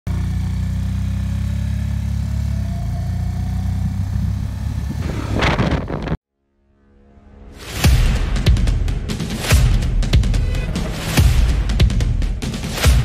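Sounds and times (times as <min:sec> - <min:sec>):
motorcycle engine running: 0:00.1 - 0:06.2.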